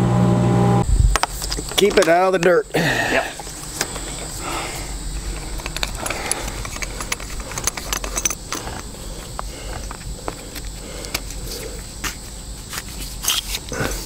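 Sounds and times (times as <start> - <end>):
low outdoor background rumble: 2.6 - 14.0
hands fitting pipe clicking: 5.2 - 10.0.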